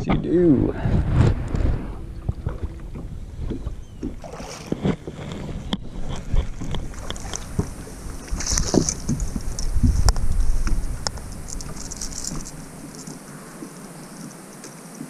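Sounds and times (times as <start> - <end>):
wind buffeting microphone: 0.0 - 15.0
fishing rod and reel clicks: 11.0 - 13.2.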